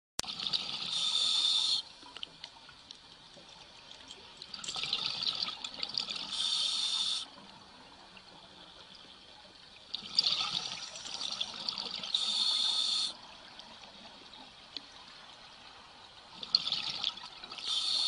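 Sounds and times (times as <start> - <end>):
diver breathing underwater: 6.3 - 7.3, 12.2 - 13.2, 17.6 - 18.0.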